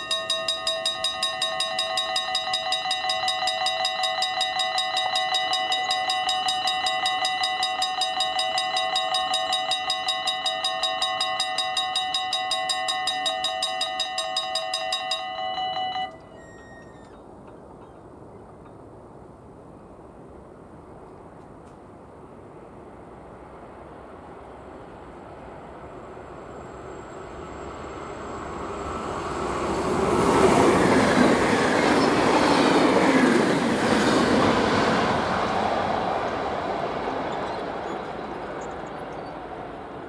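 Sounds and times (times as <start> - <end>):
level-crossing warning bell: 0.0 - 17.2, 26.4 - 40.0.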